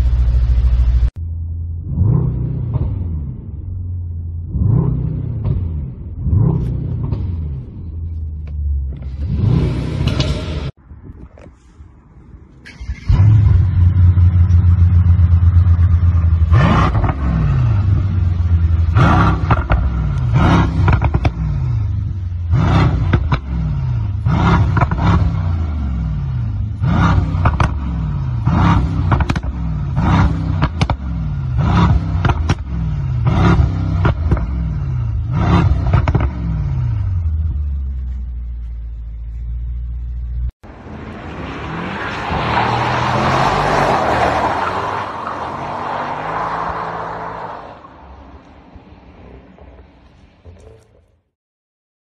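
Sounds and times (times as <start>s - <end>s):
car engine revving: 0.0s - 10.8s, 12.7s - 47.9s
exhaust crackles and pops: 19.0s - 21.6s, 24.4s - 25.3s, 27.0s - 34.6s, 35.4s - 36.5s.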